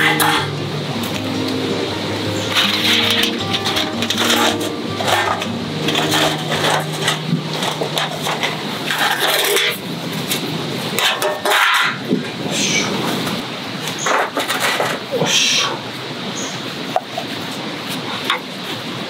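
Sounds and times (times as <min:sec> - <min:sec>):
metal clanking and scraping: 0:00.0 - 0:01.2, 0:02.4 - 0:10.4, 0:11.0 - 0:12.0.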